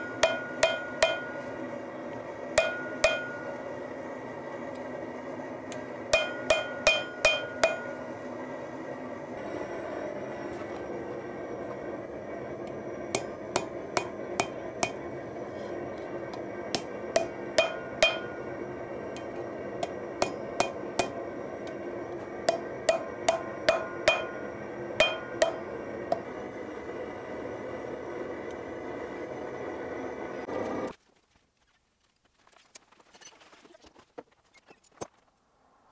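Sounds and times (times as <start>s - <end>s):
hammer striking steel on anvil: 0.0s - 1.6s, 2.5s - 3.6s, 6.1s - 8.1s, 13.1s - 15.1s, 16.3s - 21.8s, 22.4s - 26.3s.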